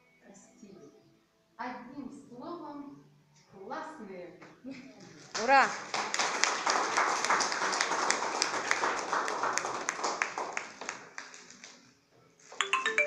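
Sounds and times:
people applauding: 5.3 - 11.8.

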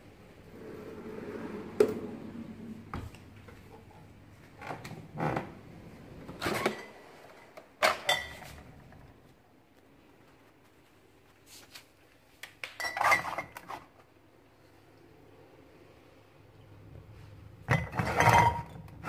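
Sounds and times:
glass bottles clinking: 7.8 - 8.6, 17.7 - 19.0.

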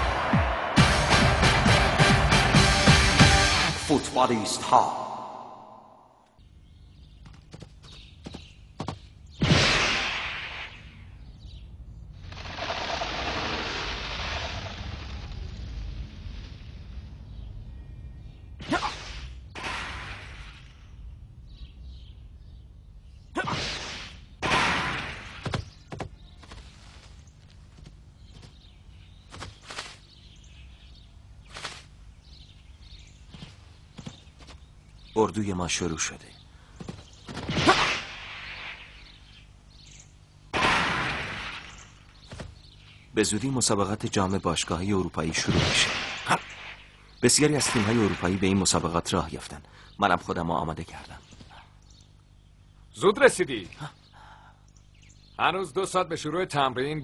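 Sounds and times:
faint bird chirps: 25.5 - 37.3, 38.4 - 40.3.

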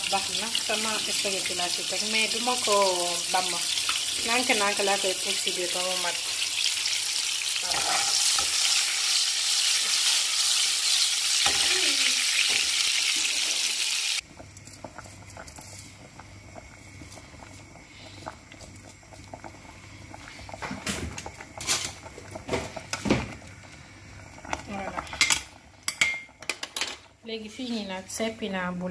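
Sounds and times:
food sizzling in oil: 0.0 - 14.3.

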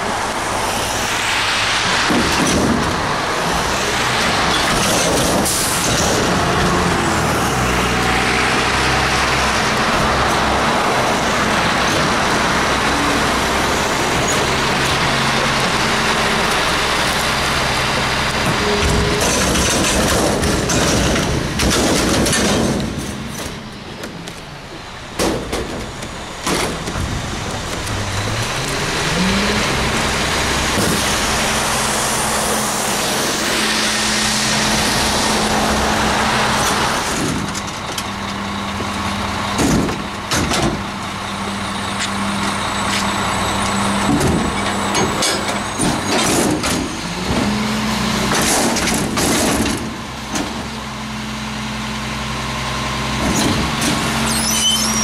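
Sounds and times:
diesel engine revving: 0.0 - 55.0
steel dumpster banging: 17.6 - 24.2, 25.1 - 32.1, 33.3 - 41.1, 43.8 - 50.8.

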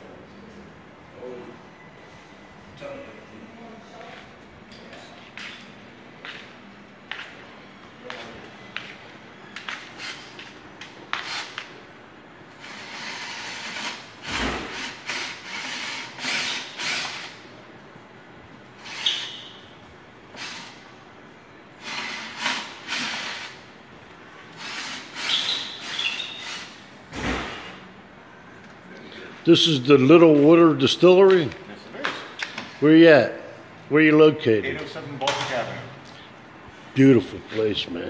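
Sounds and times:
cordless drill driving screws: 12.6 - 17.4.

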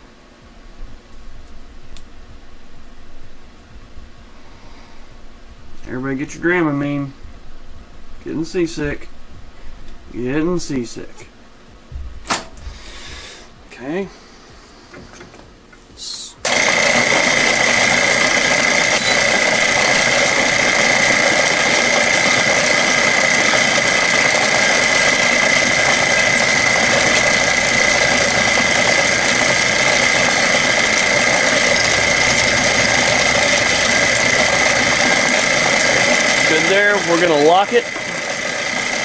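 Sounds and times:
milling machine cutting metal: 16.4 - 39.0.

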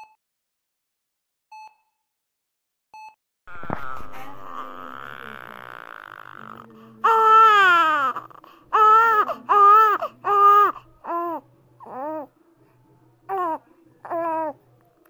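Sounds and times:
infant crying: 3.5 - 12.3, 13.3 - 14.6.

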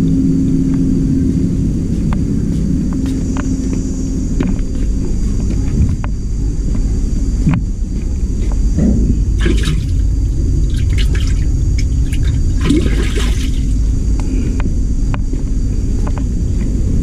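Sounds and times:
low rumble: 0.0 - 17.0
water sloshing in a tank: 8.4 - 14.0.

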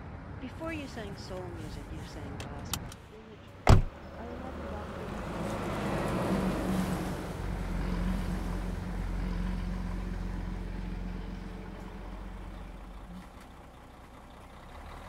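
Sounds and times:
low rumble of traffic: 0.0 - 15.0
car pulling away: 3.7 - 15.0.

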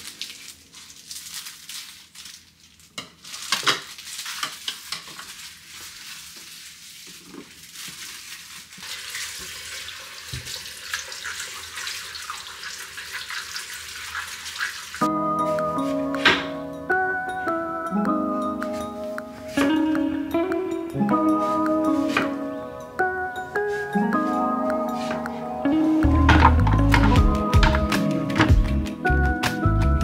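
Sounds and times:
water splashing: 4.0 - 15.1
tap running into a sink: 10.3 - 11.0
music: 15.0 - 30.0.

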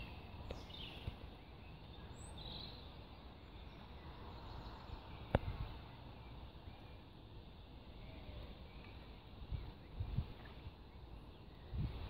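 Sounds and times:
faint bird chirps: 0.0 - 12.0.

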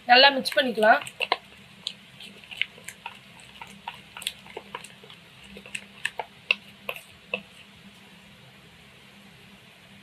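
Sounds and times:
spoon stirring thick marinade: 0.1 - 8.1.

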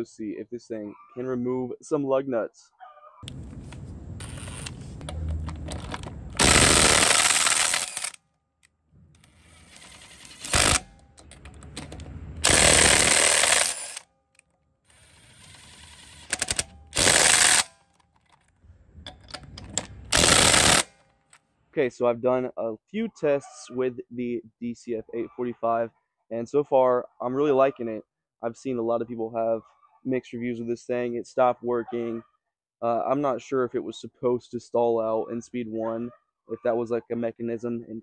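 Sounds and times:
impact driver running: 4.2 - 8.2, 9.2 - 14.0, 14.9 - 17.8, 19.7 - 20.9
impact driver hammering: 10.3 - 14.0.

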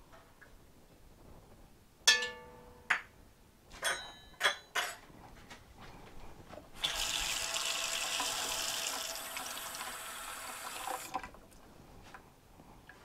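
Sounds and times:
tap water running into cup: 6.8 - 11.4.

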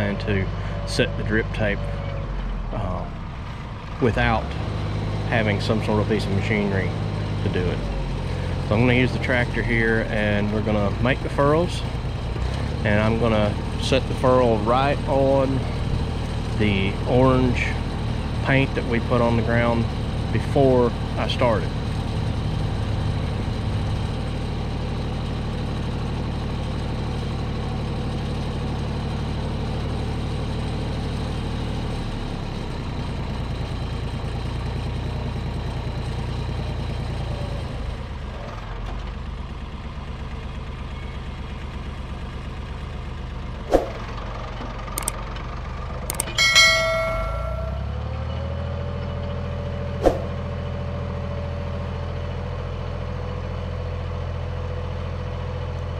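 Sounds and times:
tractor engine running: 0.0 - 55.9
sharp clicks: 45.0 - 45.2, 46.1 - 46.4
short ringing chime: 46.1 - 48.3.

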